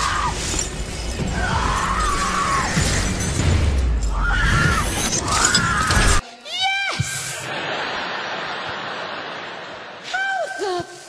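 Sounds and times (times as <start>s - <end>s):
glass syringes clattering: 0.0s - 2.2s
music: 0.0s - 6.2s.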